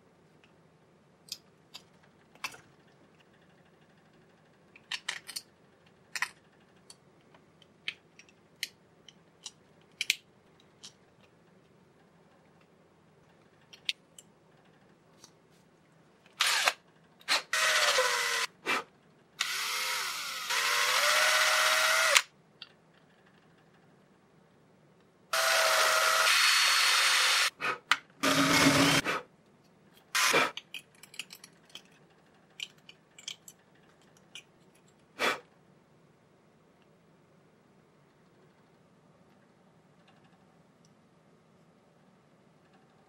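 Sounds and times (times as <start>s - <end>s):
electric drill boring plastic: 16.4s - 16.8s, 17.5s - 18.5s, 19.4s - 22.3s, 25.4s - 27.5s, 28.2s - 29.0s.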